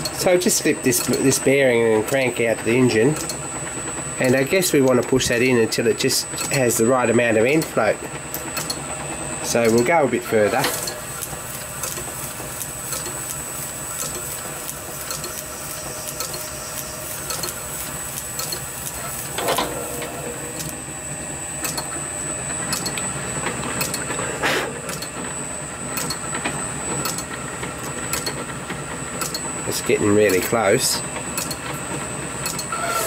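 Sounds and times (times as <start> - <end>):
lathe hum and whine: 0.0 - 33.0
lathe tool scraping: 9.3 - 21.2, 32.7 - 33.0
small ticks: 14.0 - 19.3.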